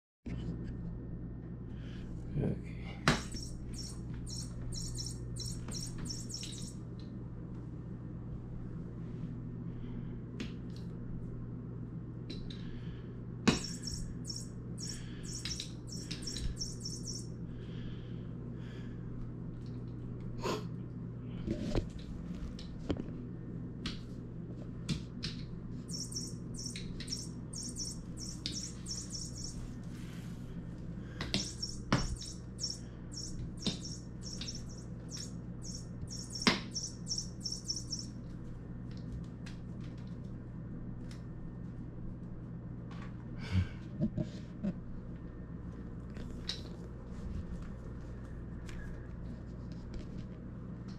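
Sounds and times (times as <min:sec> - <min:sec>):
electronic bird toy chirping: 0:03.1 - 0:06.8, 0:13.5 - 0:17.4, 0:25.8 - 0:29.8, 0:31.3 - 0:38.2.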